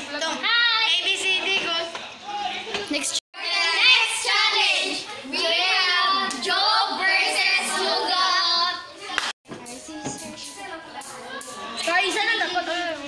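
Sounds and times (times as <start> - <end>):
girls singing together: 3.4 - 9.2.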